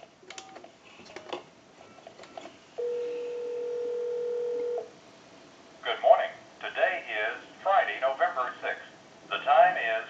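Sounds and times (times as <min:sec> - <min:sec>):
telephone ringback tone: 0:02.3 - 0:04.9.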